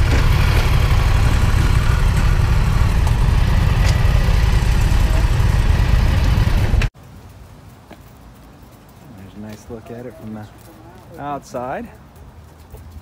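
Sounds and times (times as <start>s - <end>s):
motorcycle engine idling: 0.0s - 6.9s.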